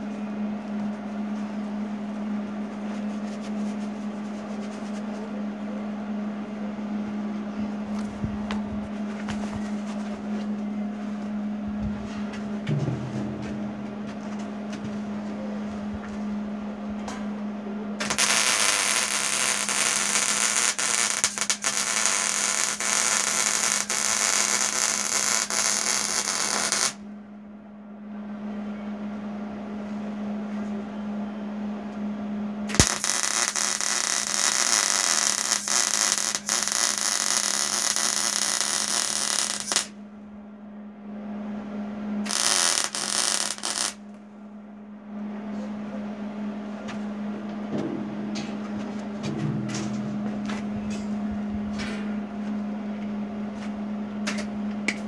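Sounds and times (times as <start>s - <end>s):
steady low hum: 0.0s - 55.0s
welding arc crackling: 18.0s - 27.0s, 32.7s - 39.9s, 42.3s - 44.0s.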